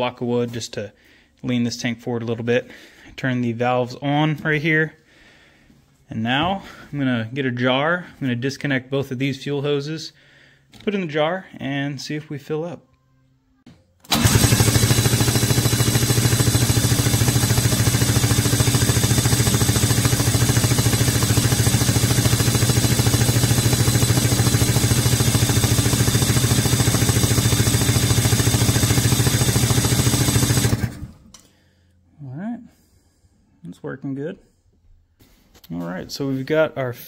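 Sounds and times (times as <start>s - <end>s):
snowmobile engine cranking: 14.0s - 31.5s.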